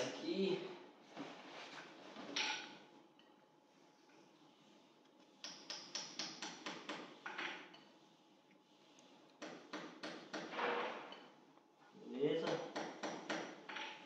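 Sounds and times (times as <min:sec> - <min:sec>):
short scrape: 0:10.5 - 0:11.2.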